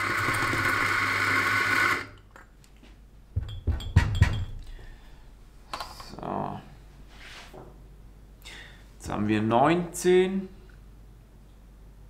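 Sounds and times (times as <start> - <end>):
coffee grinder motor running: 0.0 - 2.1.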